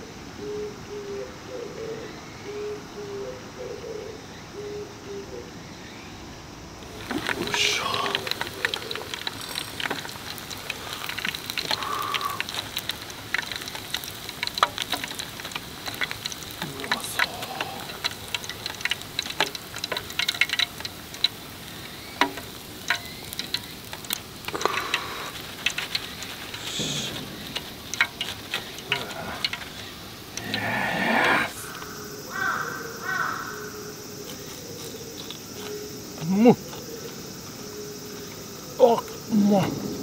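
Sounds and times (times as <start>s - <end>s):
hot oil sizzling and crackling: 6.7s - 40.0s
sharp oil pops: 6.8s - 30.5s.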